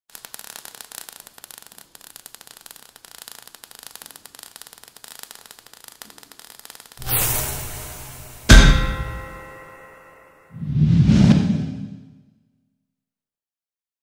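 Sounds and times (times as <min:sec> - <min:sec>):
sparks crackling and fizzing: 0:00.0 - 0:08.6.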